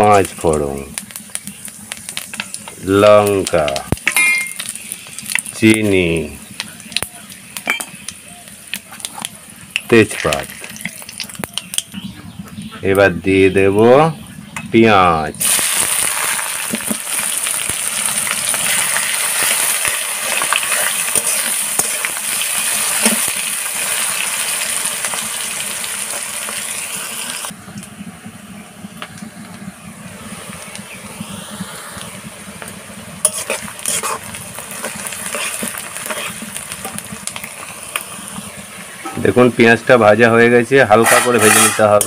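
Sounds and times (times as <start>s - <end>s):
onions sizzling in oil: 0.0s - 12.4s, 14.4s - 42.0s
metal spatula scraping pan: 18.7s - 22.2s, 33.2s - 34.4s, 35.2s - 37.0s, 40.9s - 42.0s.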